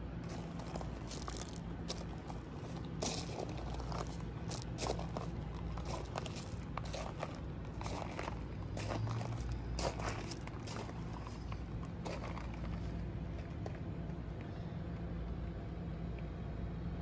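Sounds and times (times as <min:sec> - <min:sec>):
steady low hum: 0:00.0 - 0:17.0
footsteps crunching on gravel: 0:00.2 - 0:13.8.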